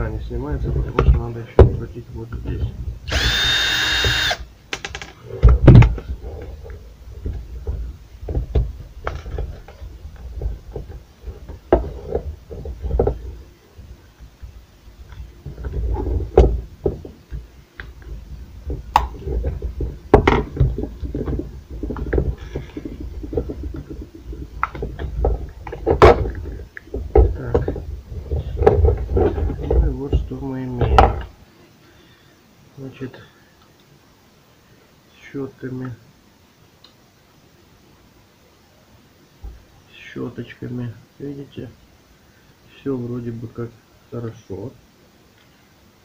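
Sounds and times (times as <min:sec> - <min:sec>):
cordless screwdriver whir: 0:03.1 - 0:04.4
plastic housing knocks and rattles: 0:07.2 - 0:13.4, 0:18.6 - 0:29.9.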